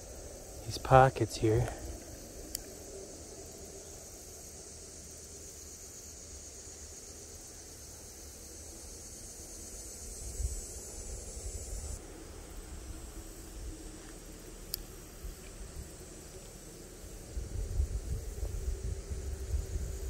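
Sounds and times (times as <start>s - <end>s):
insects droning: 0.0s - 20.0s
faint click: 2.5s - 2.7s, 14.0s - 15.5s
wind rumble on microphone: 10.0s - 14.0s, 17.0s - 20.0s.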